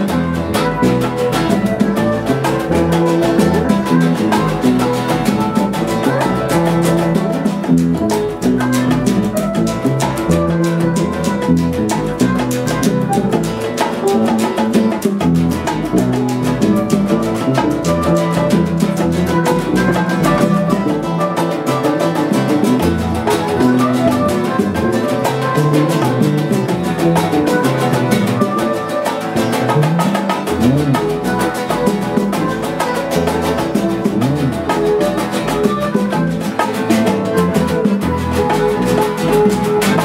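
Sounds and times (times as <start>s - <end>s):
bongos: 0.0s - 40.0s
salsa band music: 0.0s - 40.0s.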